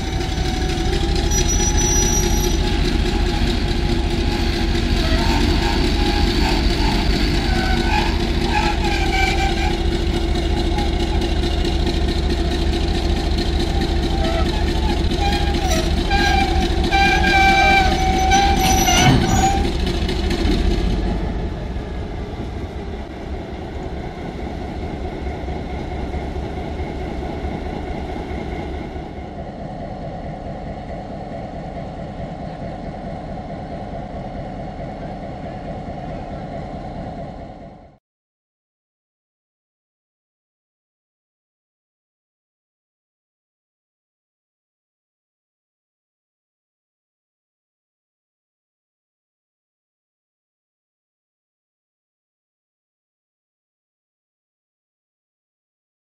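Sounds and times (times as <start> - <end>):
train rumbling past: 0.0 - 38.0
high-pitched wheel squeals: 0.4 - 11.3, 13.6 - 19.8.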